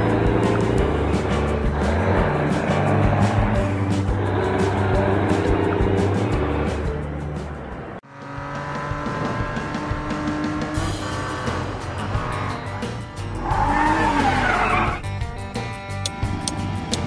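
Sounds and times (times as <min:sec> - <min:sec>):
tire screech: 0:00.0 - 0:07.0, 0:09.1 - 0:15.1
truck engine running: 0:00.0 - 0:17.0.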